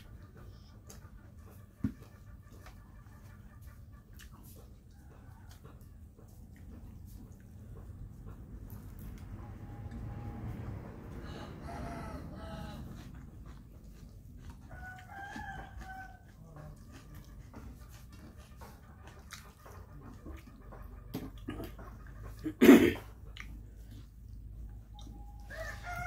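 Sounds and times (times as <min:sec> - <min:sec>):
faint rooster crowing: 0:04.6 - 0:06.4, 0:09.1 - 0:13.6, 0:14.4 - 0:17.0, 0:23.9 - 0:26.0
fingers mixing rice on plate: 0:12.8 - 0:22.4.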